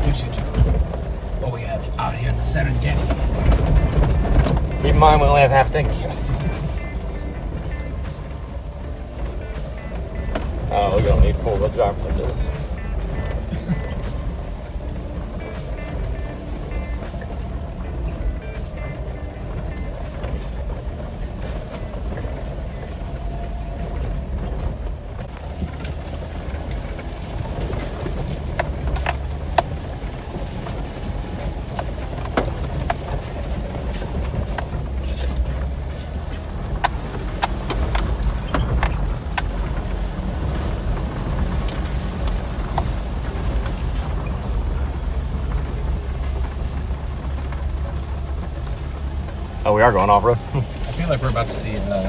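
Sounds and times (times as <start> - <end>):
engine and road rumble: 0.0 - 52.0.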